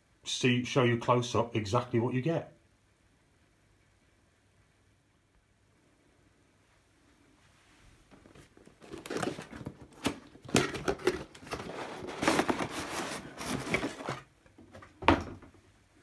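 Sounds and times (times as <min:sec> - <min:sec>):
cardboard scraping and rustling: 0:08.1 - 0:15.0.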